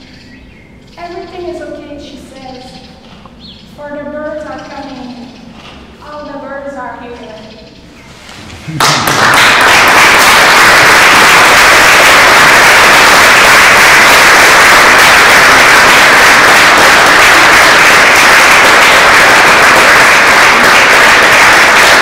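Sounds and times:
audience applauding: 8.8s - 22.0s.

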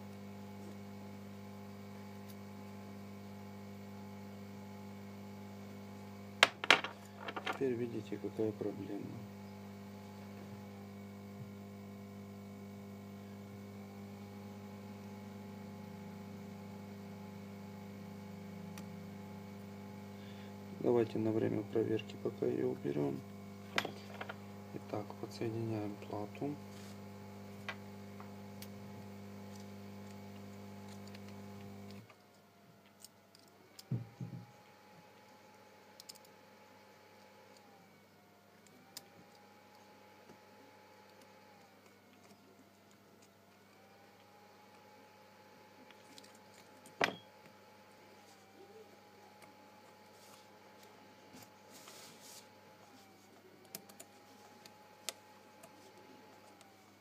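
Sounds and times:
low electrical hum: 0.0s - 57.0s.

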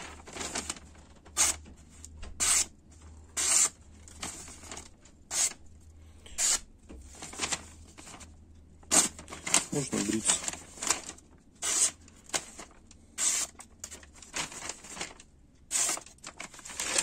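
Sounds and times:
knife slicing paper: 2.4s - 2.7s, 3.4s - 5.6s, 6.4s - 6.6s, 8.9s - 13.6s, 15.7s - 17.0s.

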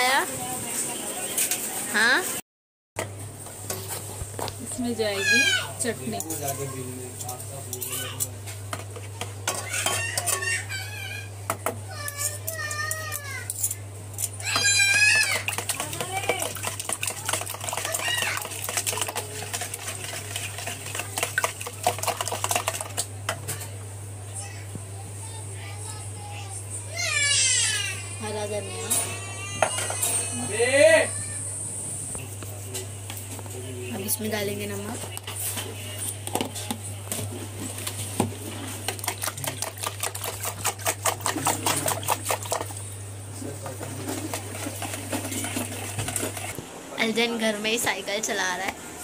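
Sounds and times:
whisk beating eggs in bowl: 14.6s - 23.3s, 37.8s - 42.8s, 43.4s - 46.6s.

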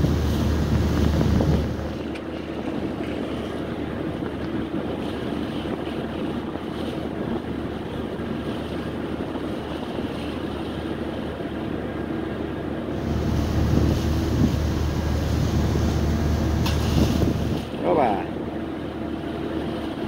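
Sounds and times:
wind on microphone: 0.0s - 10.2s, 12.9s - 17.8s
ship engine hum: 0.0s - 20.0s
water streaming past hull: 0.0s - 20.0s.

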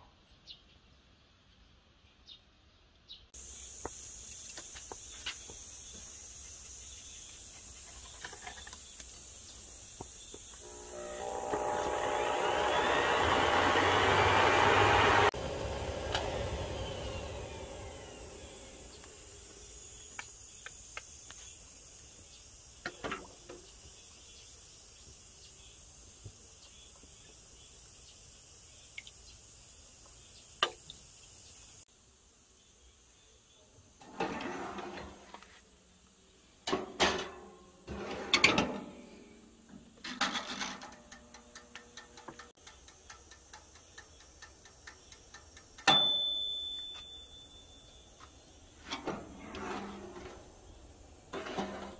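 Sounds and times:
insects buzzing: 3.4s - 13.2s, 15.3s - 34.0s, 42.1s - 45.8s
clockwork timer ticking: 40.9s - 45.9s
timer bell ding: 45.9s - 48.0s.

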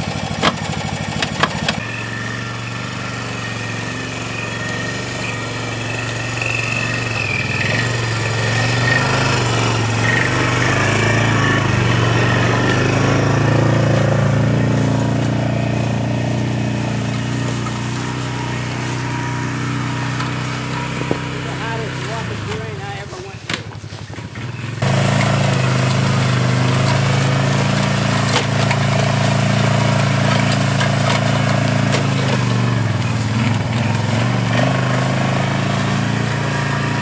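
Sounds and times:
atv engine under load: 0.0s - 37.0s.

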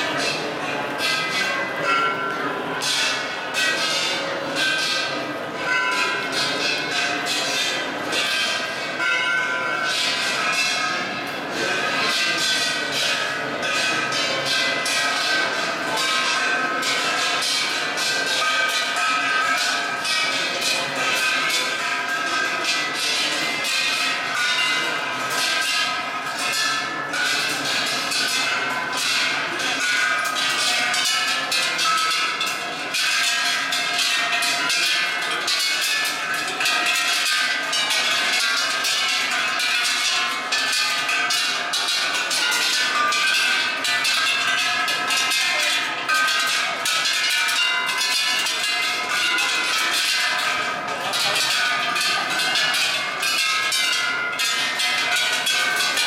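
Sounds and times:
sticks striking bells: 0.0s - 56.0s
temple bells ringing: 0.0s - 56.0s.

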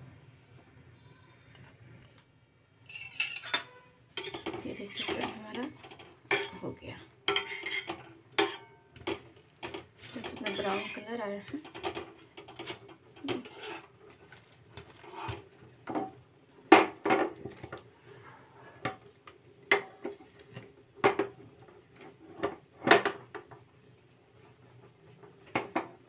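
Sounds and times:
utensils clinking against cookware: 2.8s - 14.4s.

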